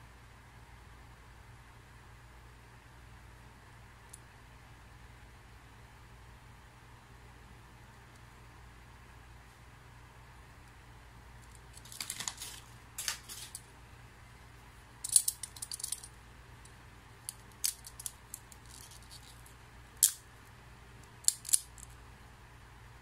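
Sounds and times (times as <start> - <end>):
small plastic parts clicking: 15.0 - 20.2, 21.0 - 22.0.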